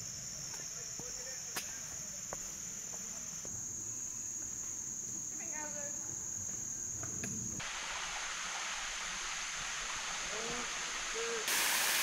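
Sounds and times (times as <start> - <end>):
steady hiss: 7.2 - 12.0.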